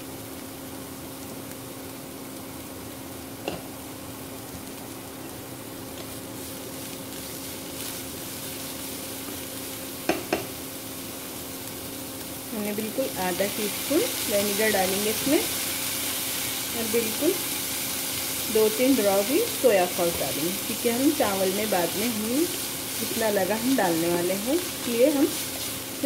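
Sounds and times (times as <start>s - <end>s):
cabbage sizzling in oil: 0.0s - 26.0s
spatula knocking on pan: 10.0s - 10.5s.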